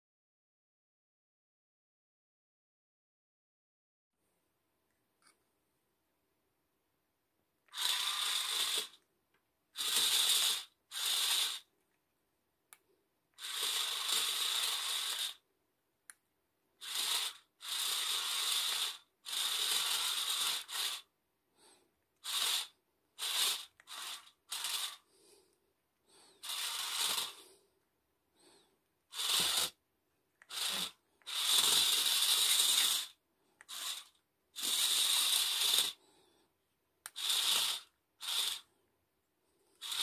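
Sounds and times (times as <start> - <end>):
small geared motors whirring: 7.7 - 9.0, 9.8 - 11.7, 13.4 - 15.4, 16.8 - 21.1, 22.2 - 25.1, 26.4 - 27.5, 29.1 - 29.8, 30.4 - 36.0, 37.1 - 38.7, 39.8 - 40.0.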